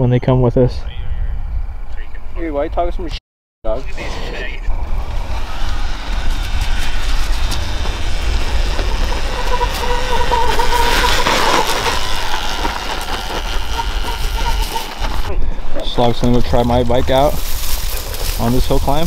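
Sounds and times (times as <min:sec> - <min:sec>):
low rumble: 0:03.9 - 0:19.0
electric motorbike motor whine: 0:04.8 - 0:15.3.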